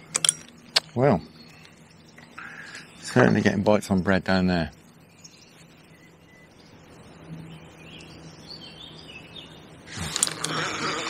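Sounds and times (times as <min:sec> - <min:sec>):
faint bird chirps: 0:00.0 - 0:10.6
fishing rod rustle and clatter: 0:09.9 - 0:11.0.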